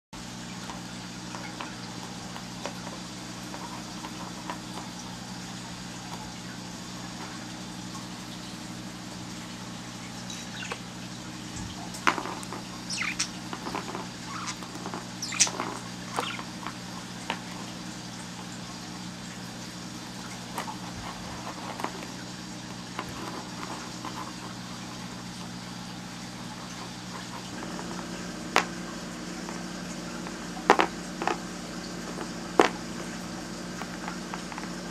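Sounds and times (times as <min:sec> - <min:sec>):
steady low hum: 0:00.2 - 0:34.9
bird beak tapping on game pieces: 0:01.3 - 0:04.8, 0:12.0 - 0:17.6, 0:30.7 - 0:31.4.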